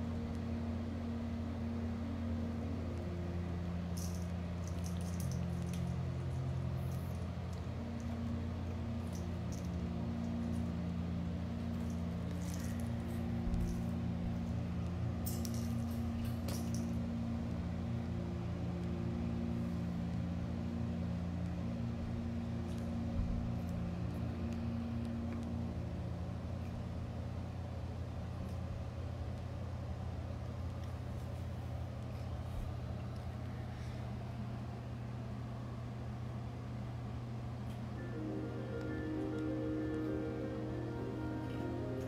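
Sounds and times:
droning tones: 0.0s - 28.2s, 37.9s - 42.0s
low mechanical hum: 0.0s - 42.0s.

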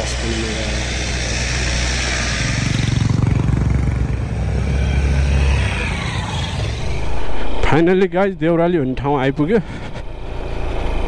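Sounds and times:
motorcycle engine running: 0.0s - 7.9s
wind and road noise: 0.0s - 11.0s.

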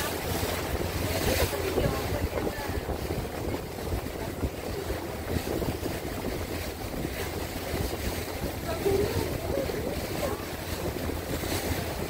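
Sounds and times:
boat engine hum: 0.0s - 12.0s
water against hull: 0.0s - 12.0s
wind on microphone: 0.0s - 12.0s.

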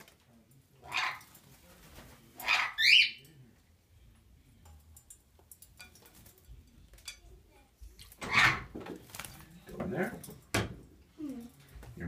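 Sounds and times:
parrot squawking: 0.8s - 1.3s, 2.4s - 3.2s, 8.2s - 8.7s.

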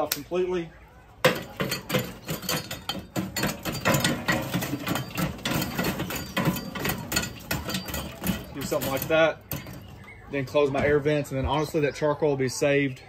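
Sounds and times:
charcoal scraping on metal grate: 1.2s - 11.0s.

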